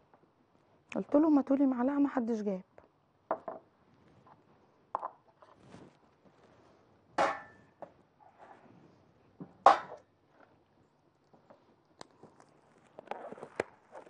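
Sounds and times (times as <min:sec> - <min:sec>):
knocks and clatters on kitchen counter: 0:03.3 - 0:03.7.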